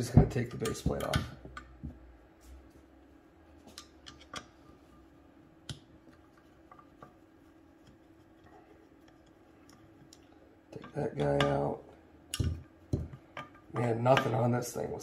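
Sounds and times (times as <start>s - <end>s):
faint steady hum: 0.0s - 15.0s
faint metallic clicks and taps: 7.8s - 14.4s.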